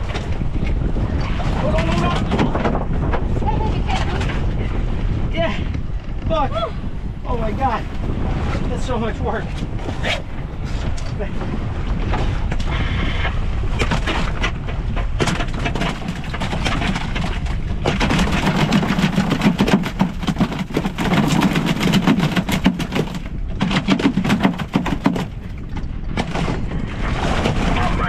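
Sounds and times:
fish tail drumming on boat deck: 13.8 - 26.7.

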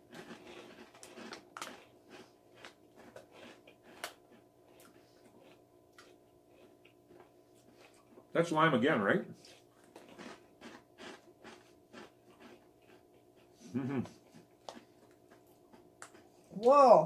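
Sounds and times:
tortilla chips crunching: 0.0 - 8.3, 9.4 - 13.5.

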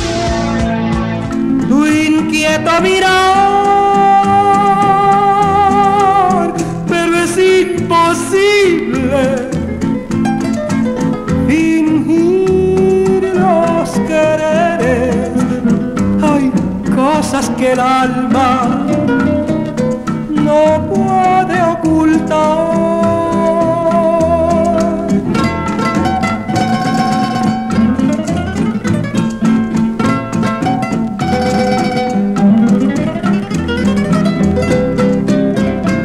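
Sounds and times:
person singing: 0.0 - 9.8, 11.4 - 25.4
plucked guitar: 0.0 - 36.0.

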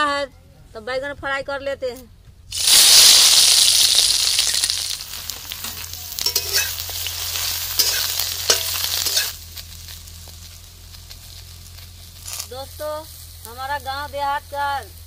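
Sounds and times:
eggplant sizzling in hot oil: 2.5 - 15.0
metal spatula scraping pan: 5.4 - 9.4.

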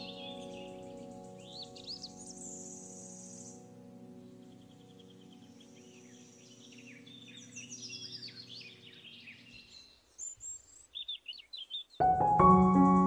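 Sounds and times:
piano music: 0.0 - 7.2, 12.0 - 13.0
soft held music chord: 0.0 - 9.6, 12.0 - 13.0
birdsong chirps: 0.0 - 13.0.

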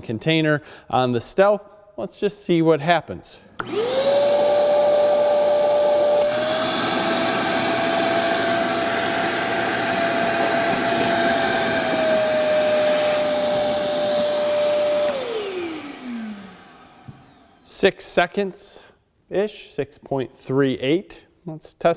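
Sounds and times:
shop vacuum running: 3.6 - 17.8.

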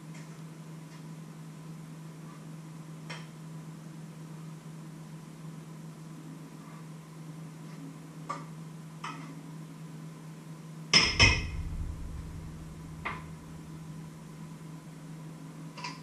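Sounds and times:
steady low hum: 11.0 - 15.1.

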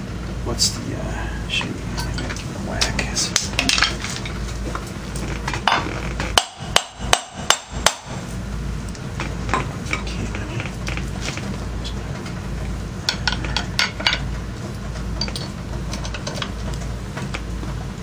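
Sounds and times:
hammer striking metal: 6.4 - 8.2.

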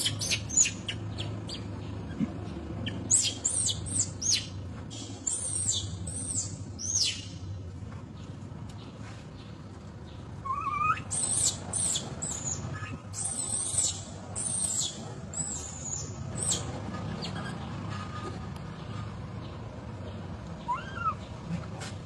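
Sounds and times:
infant monkey screaming: 10.4 - 17.5, 20.6 - 21.3.

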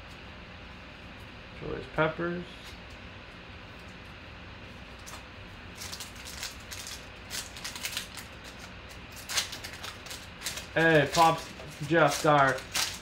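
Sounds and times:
foil wrapper crinkling and tearing: 4.9 - 13.0.

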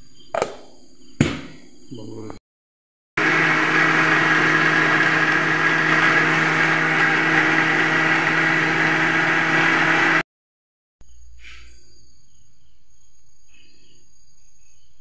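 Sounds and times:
mixer grinder motor whine: 3.2 - 10.2.

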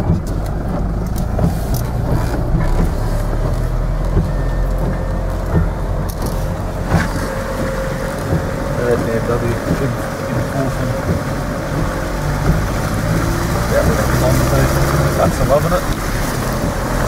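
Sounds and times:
vehicle engine and road rumble: 0.0 - 17.0.

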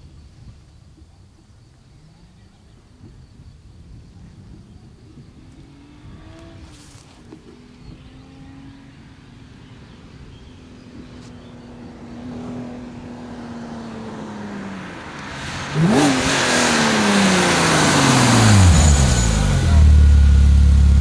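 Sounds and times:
car engine accelerating: 4.6 - 21.0.

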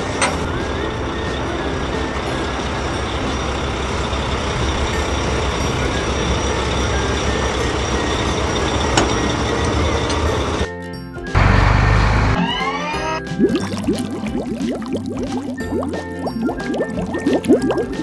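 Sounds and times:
heavy truck engine running: 0.0 - 10.7, 11.3 - 13.2.

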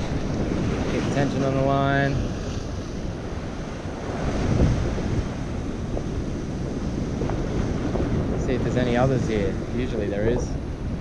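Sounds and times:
surf breaking on rocks: 0.0 - 10.8
wind buffeting microphone: 0.0 - 11.0.

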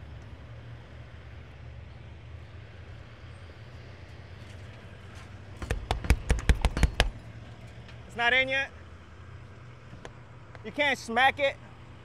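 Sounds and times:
engine idling with low hum: 0.0 - 12.0
loud sharp knocks on sign: 5.6 - 7.2.

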